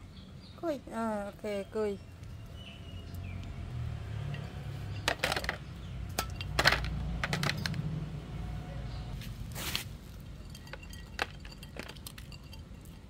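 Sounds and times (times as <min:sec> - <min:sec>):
bones clattering into a bowl: 0:04.3 - 0:07.9, 0:10.3 - 0:13.0.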